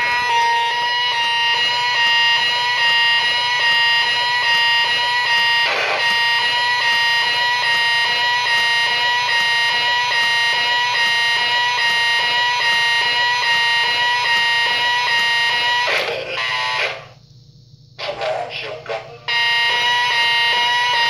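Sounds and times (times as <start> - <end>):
buzzy electronic notes from toy speaker: 0.0 - 17.2, 19.3 - 21.0.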